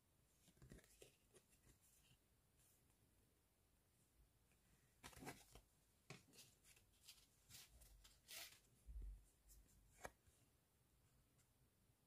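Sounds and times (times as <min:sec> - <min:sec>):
photo cards rustling and scraping: 0:05.0 - 0:08.8.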